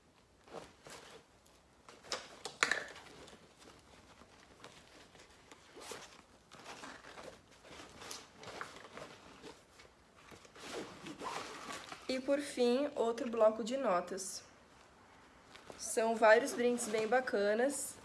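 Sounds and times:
rummaging in a tote bag: 0:03.0 - 0:12.3, 0:15.4 - 0:18.0.

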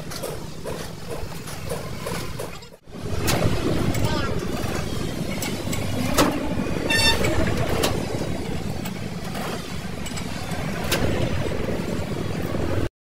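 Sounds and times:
vehicle engine rumble: 0:00.0 - 0:12.9.

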